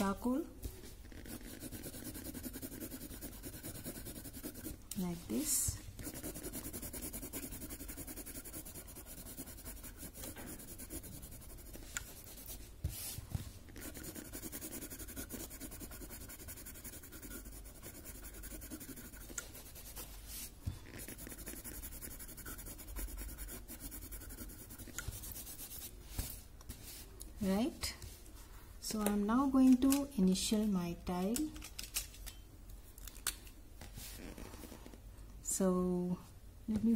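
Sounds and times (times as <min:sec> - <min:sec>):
pencil scratching on paper: 0:01.0 - 0:04.8, 0:05.4 - 0:13.1, 0:13.7 - 0:20.2, 0:20.8 - 0:25.9.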